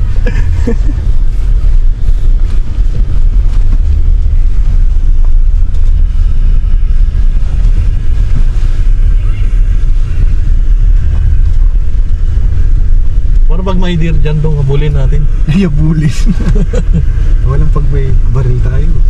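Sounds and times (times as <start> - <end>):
car engine and tyre rumble: 0.0 - 19.0.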